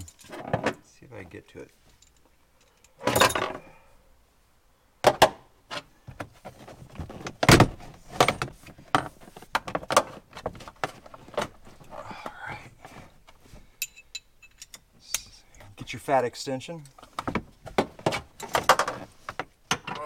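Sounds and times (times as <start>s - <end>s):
metal hand tools clinking: 13.8s - 15.2s.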